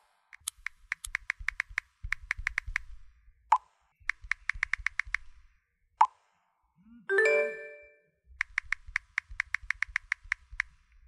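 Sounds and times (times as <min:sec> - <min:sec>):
bright notification chime: 0:07.1 - 0:08.0
phone keyboard tap clicks: 0:08.4 - 0:10.7.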